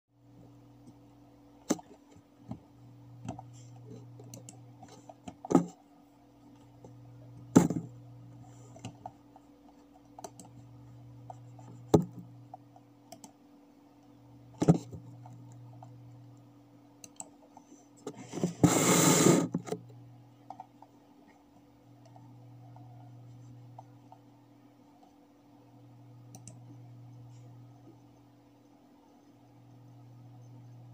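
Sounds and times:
faint low hum: 0.2 - 30.9
computer mouse clicking: 3.2 - 5.8, 8.6 - 13.4, 17.0 - 18.1, 26.3 - 26.8.

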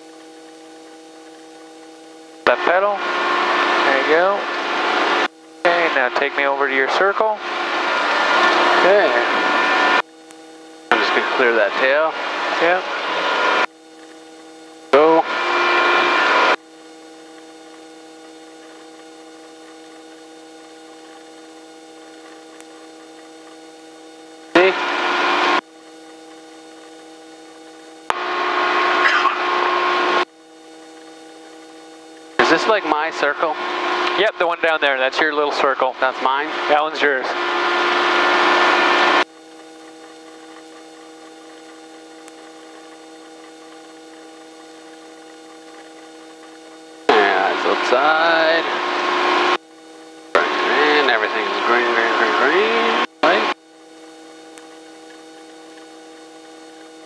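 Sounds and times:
steady electrical hum: 0.0 - 57.0.

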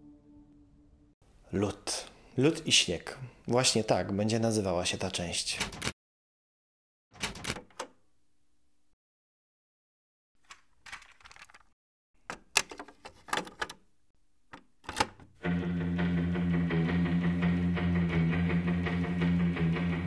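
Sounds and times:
guitar music: 15.4 - 20.0.

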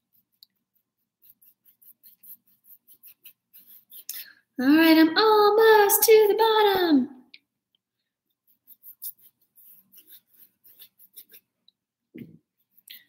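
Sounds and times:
paintbrush scrubbing canvas: 0.0 - 4.6, 8.2 - 11.7, 12.5 - 13.0.

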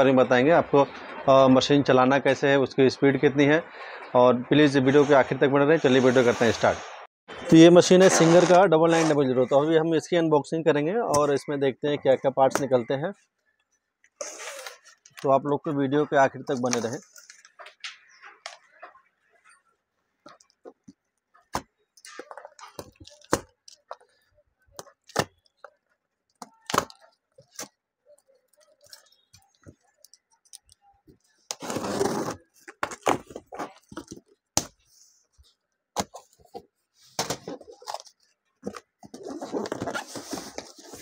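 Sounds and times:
cardboard ripping and rustling: 31.5 - 34.2, 39.1 - 41.0.

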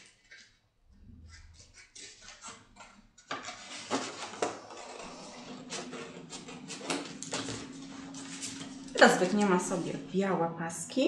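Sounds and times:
scissors snipping paper: 1.3 - 4.4
paper rustling: 1.4 - 9.6.

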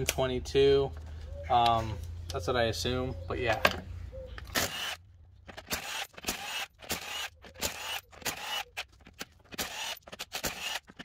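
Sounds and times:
impact wrench whining bursts: 4.5 - 5.0, 5.6 - 11.0.

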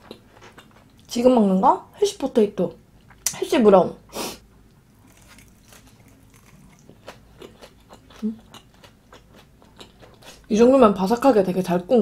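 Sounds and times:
crunchy chewing: 4.9 - 10.5.

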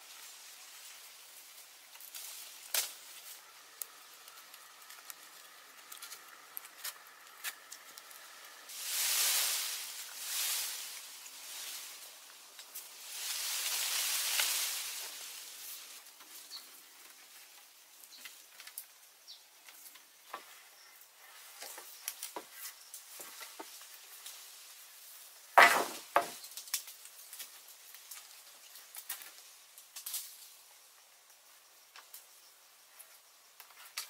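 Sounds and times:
wooden poles knocking and creaking: 25.6 - 26.4.

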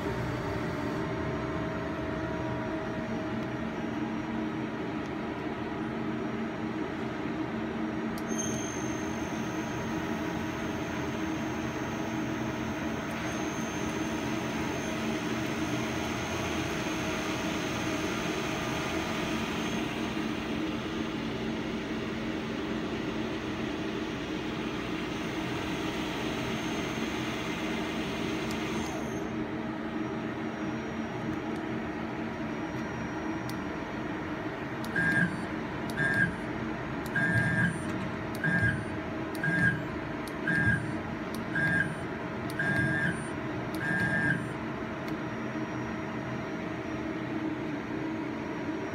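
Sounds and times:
two-tone beeps: 42.6 - 44.5.

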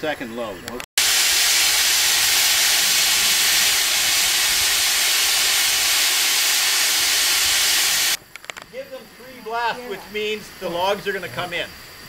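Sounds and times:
boiler venting steam: 1.0 - 12.0.

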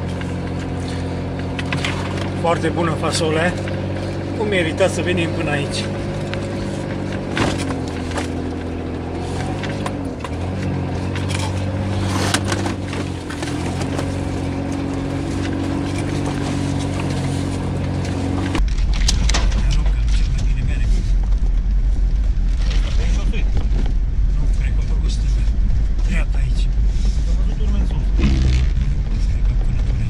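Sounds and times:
deep rumble of vehicle moving: 0.0 - 30.0
vehicle engine hum from cabin: 0.0 - 30.0
knocks from bumpy ride: 27.8 - 30.0.

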